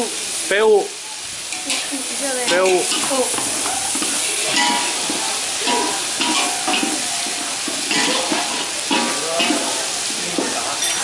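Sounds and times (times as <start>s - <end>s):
eggs sizzling in hot oil: 0.0s - 11.0s.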